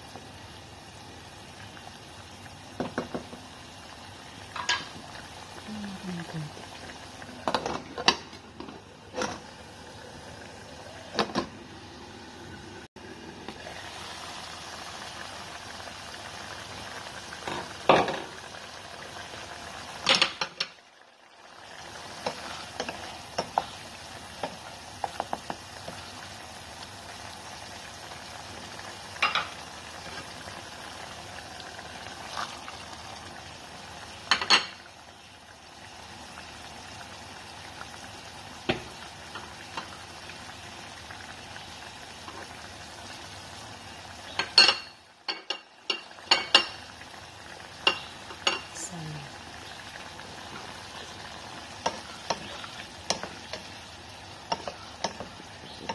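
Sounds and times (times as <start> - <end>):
sauce bubbling in a pot: 0.0 - 55.9
wooden spoon knocking on pot: 2.8 - 3.4, 54.5 - 55.3.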